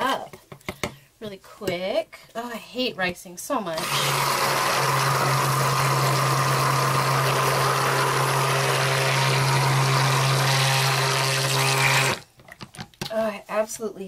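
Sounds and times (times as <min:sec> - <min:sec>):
stick blender motor running: 0:03.8 - 0:12.2.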